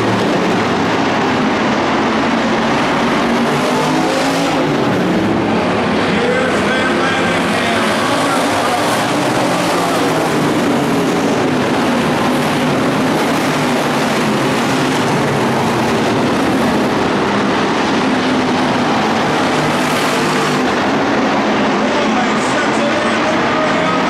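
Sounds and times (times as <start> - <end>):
race car engines droning: 0.0 - 24.0.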